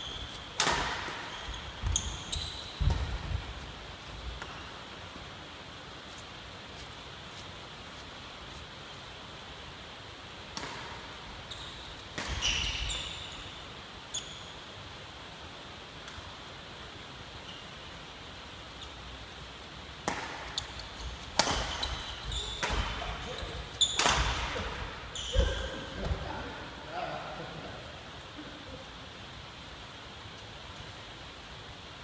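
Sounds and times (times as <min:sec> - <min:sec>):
court shoes squeaking: 0:00.0 - 0:03.7, 0:10.6 - 0:14.6, 0:17.4 - 0:17.8, 0:20.1 - 0:26.2
faint steady hiss: 0:00.0 - 0:32.0
racket striking shuttlecock: 0:00.3 - 0:01.3, 0:10.5 - 0:11.0, 0:20.0 - 0:23.2, 0:23.9 - 0:25.5.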